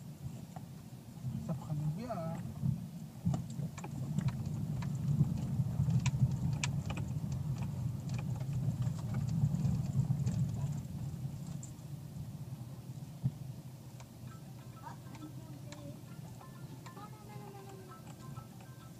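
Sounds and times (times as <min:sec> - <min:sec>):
engine and tyres humming: 0:00.0 - 0:18.9
stones clicking and cabin rattles: 0:03.3 - 0:11.8.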